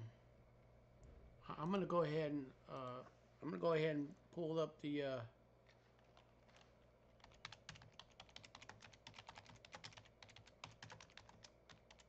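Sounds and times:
rapid keyboard typing: 0:06.1 - 0:12.0.

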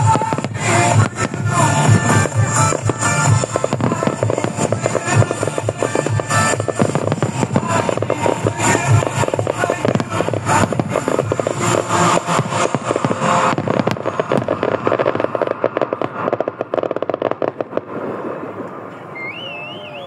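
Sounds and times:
fireworks crackling: 0:00.0 - 0:20.0.

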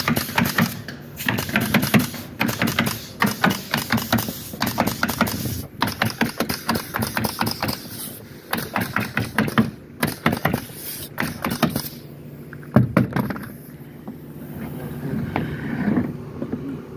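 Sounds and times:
pneumatic nailer firing: 0:00.0 - 0:12.0.

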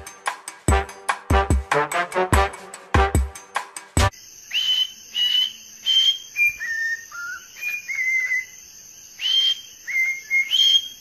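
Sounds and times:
cockatiel whistling a melody: 0:04.5 - 0:08.6, 0:09.2 - 0:11.0.

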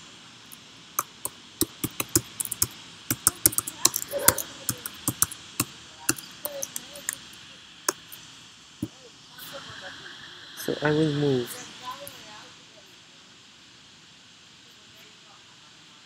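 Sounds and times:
computer keyboard keys clicking: 0:01.0 - 0:07.3.

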